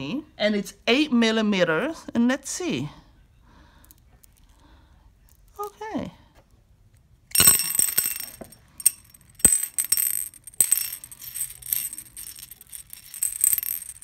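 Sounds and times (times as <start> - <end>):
beads clicking in ceramic dish: 7.4 - 14.0.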